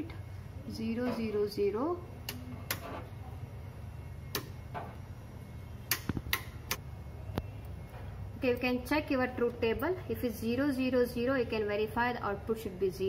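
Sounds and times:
steady low hum: 0.0s - 13.0s
toggle switches clicking: 2.2s - 2.9s, 4.3s - 4.6s, 5.8s - 6.8s.

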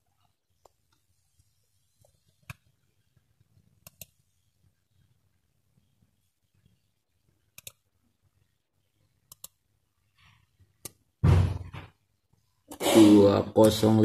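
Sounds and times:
thump: 11.2s - 11.9s.

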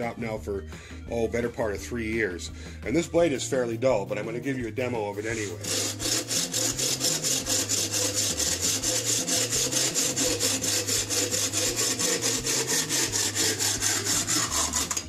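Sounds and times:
bow saw cutting wood: 4.2s - 15.0s.

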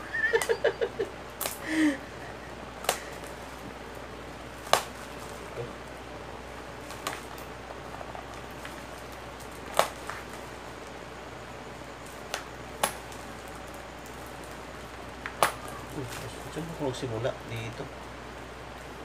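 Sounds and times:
low steady hum: 0.0s - 19.0s
parcel wrapping clicks and snaps: 1.4s - 1.6s, 2.8s - 3.4s, 8.2s - 11.0s.

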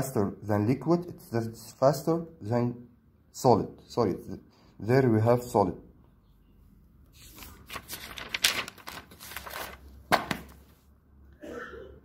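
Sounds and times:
paper page rustling: 7.1s - 10.9s.

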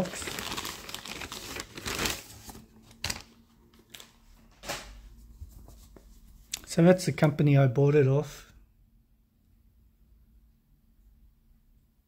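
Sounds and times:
plastic bag crinkling: 0.0s - 4.1s.

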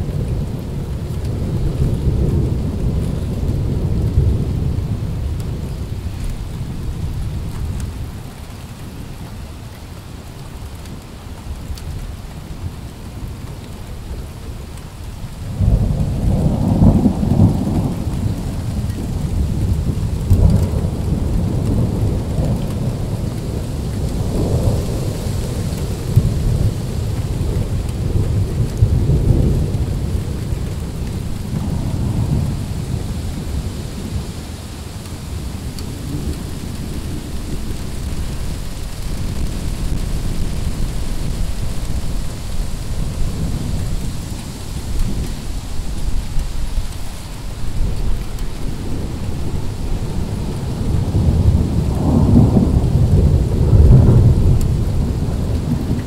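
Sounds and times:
steady rain: 0.0s - 56.0s
thunder rumbling: 15.4s - 56.0s.

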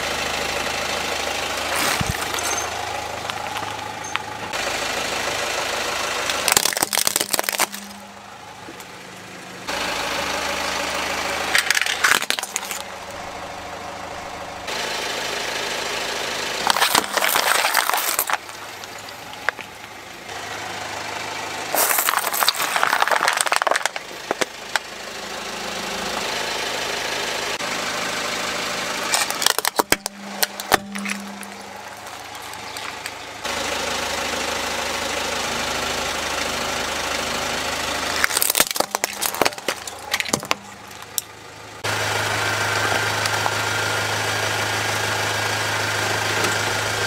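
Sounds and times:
car engine idling: 0.0s - 47.0s
plastic cracking and crunching: 1.7s - 2.6s, 6.3s - 8.0s, 11.6s - 12.9s, 16.6s - 20.0s, 21.8s - 24.8s, 29.1s - 33.1s, 38.2s - 41.3s.

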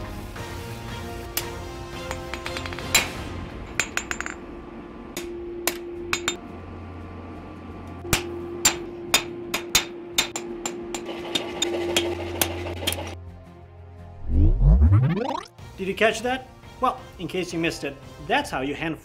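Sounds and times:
anvil ringing: 5.2s - 6.4s.

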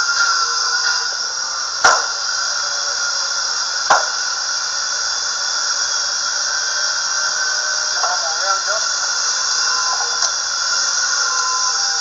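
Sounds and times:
high-pitched hiss and whine: 0.0s - 12.0s
screwdriver striking board: 1.8s - 2.1s, 3.9s - 4.1s.

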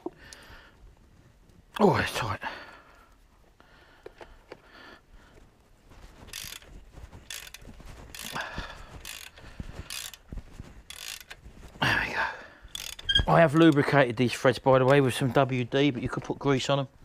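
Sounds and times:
ratchet clicking: 6.3s - 6.7s, 7.3s - 8.4s, 9.0s - 10.2s, 10.9s - 11.4s, 12.7s - 13.8s.

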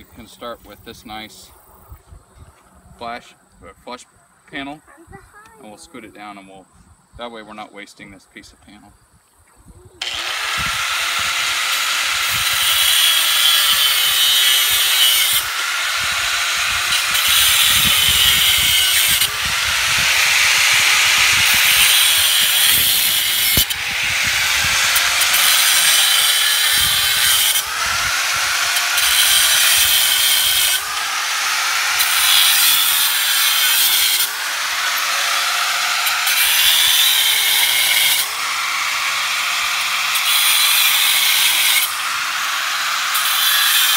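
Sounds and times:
angle grinder cutting steel wire: 10.0s - 43.9s.

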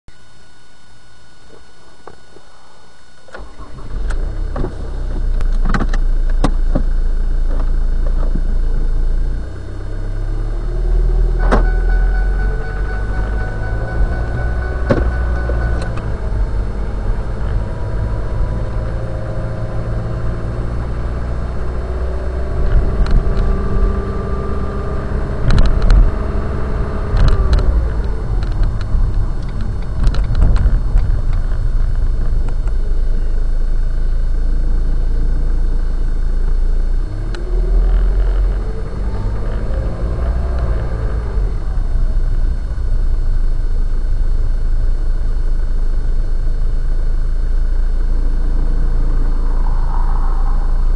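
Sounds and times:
car engine and road rumble: 0.0s - 50.9s.

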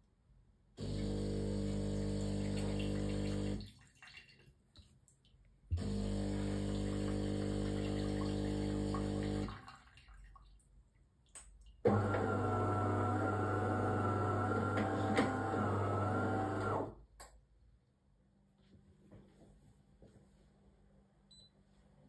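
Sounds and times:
coffee machine pump humming: 0.8s - 3.6s, 5.7s - 9.5s, 11.9s - 16.9s
water running into cup: 0.8s - 4.5s, 5.7s - 10.5s.

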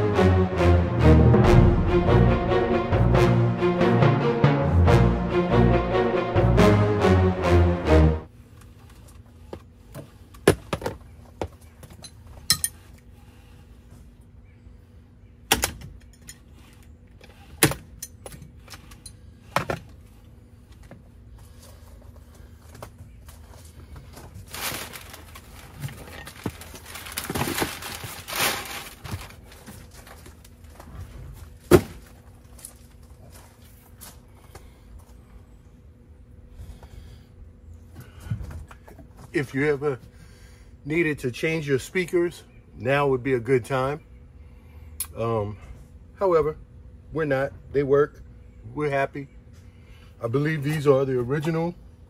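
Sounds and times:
packing paper rustling: 24.0s - 30.8s.

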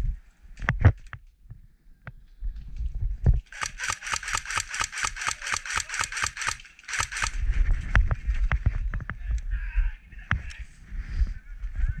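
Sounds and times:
airsoft gun full-auto burst: 3.5s - 7.5s.

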